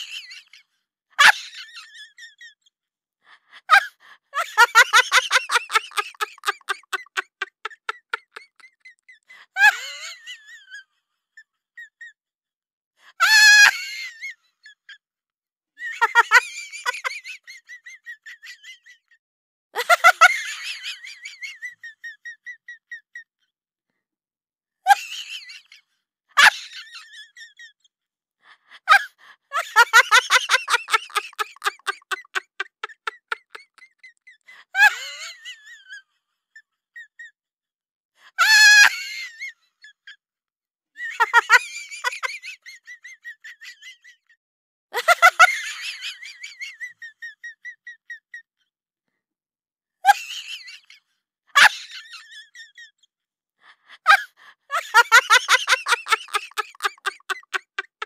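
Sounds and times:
high-pitched pulsed laughter-like sounds: 0:03.7 - 0:10.9, 0:29.0 - 0:36.1, 0:54.2 - 0:58.0.

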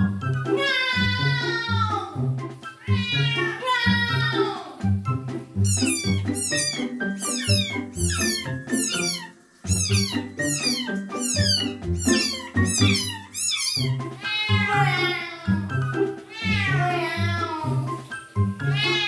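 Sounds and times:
shower water running: 0:00.2 - 0:19.0
cat yowling: 0:02.8 - 0:04.0, 0:05.6 - 0:15.6, 0:16.3 - 0:17.6, 0:18.7 - 0:19.0
cat meowing: 0:02.8 - 0:04.3, 0:05.6 - 0:15.6, 0:16.3 - 0:17.7, 0:18.7 - 0:19.0
music with steady beat: 0:04.8 - 0:13.2.

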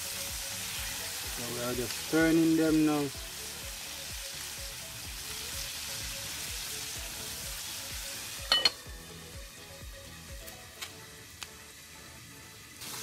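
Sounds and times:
chicken sizzling in hot oil: 0:00.0 - 0:13.0
metal lid clanging on pot: 0:08.5 - 0:08.8.

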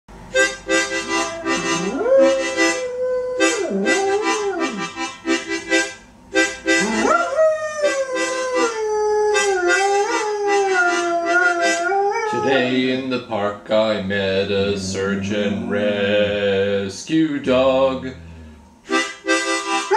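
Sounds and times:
rhythmic chord accompaniment: 0:00.1 - 0:07.5, 0:18.8 - 0:19.9
dog howling: 0:01.0 - 0:05.0, 0:06.8 - 0:12.8, 0:14.5 - 0:16.4.

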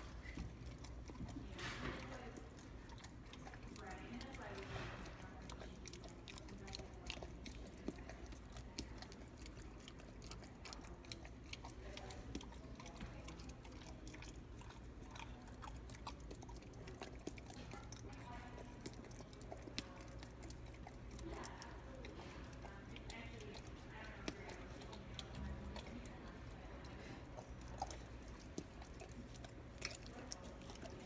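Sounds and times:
dog licking and smacking lips: 0:00.0 - 0:31.0.

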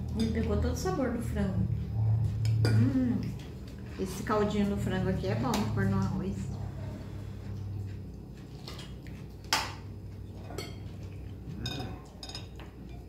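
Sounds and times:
cutlery clinking on plates: 0:10.4 - 0:13.0.

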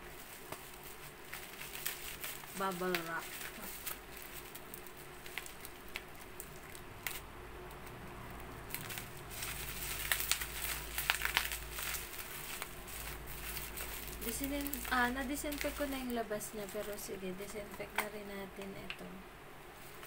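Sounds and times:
bubble wrap crackling: 0:00.0 - 0:19.2, 0:19.8 - 0:20.0.

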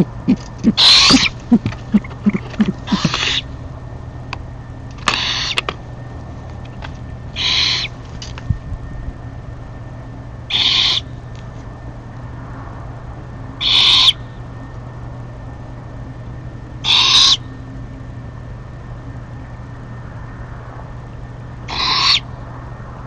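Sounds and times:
owlets screeching: 0:00.0 - 0:03.6, 0:05.0 - 0:05.7, 0:07.3 - 0:08.0, 0:10.5 - 0:11.1, 0:13.6 - 0:14.2, 0:16.8 - 0:17.5, 0:21.7 - 0:22.3.

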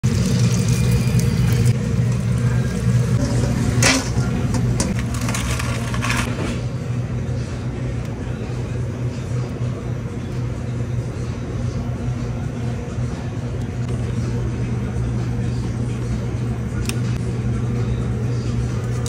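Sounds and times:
kitchen equipment hum: 0:00.0 - 0:19.0
fries tossed in steel bowl: 0:03.2 - 0:06.3.

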